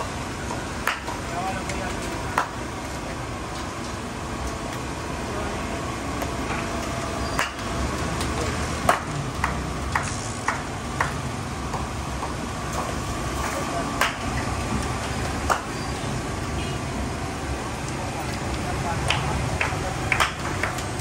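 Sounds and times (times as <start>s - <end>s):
traffic noise: 0.0s - 21.0s.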